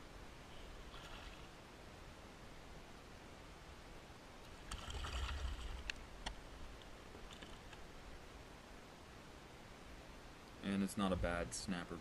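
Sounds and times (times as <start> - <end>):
fish splashing: 0.9 - 1.6, 4.6 - 5.9.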